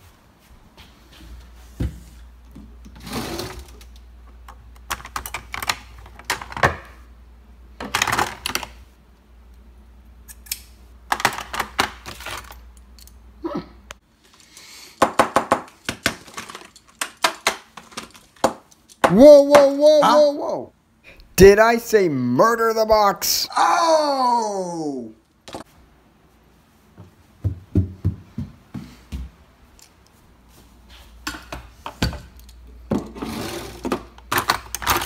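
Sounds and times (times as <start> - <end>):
low steady hum: 0.0 - 14.7
utensils clattering in a drawer: 16.2 - 18.4.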